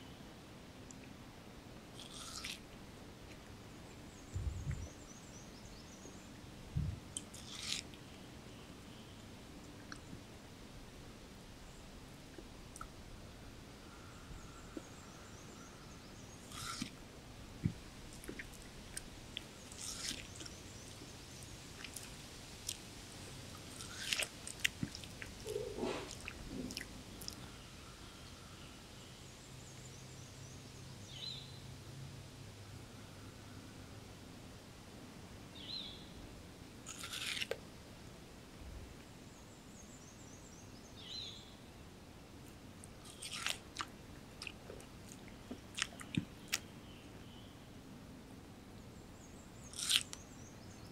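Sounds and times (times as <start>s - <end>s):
monkey chewing watermelon: 2.0s - 2.7s, 7.1s - 8.0s, 16.4s - 17.0s, 17.6s - 22.9s, 23.5s - 27.5s, 36.8s - 37.6s, 42.8s - 46.7s
short low soft sounds: 4.3s - 4.9s, 6.7s - 7.0s
bird chirping: 13.8s - 16.9s.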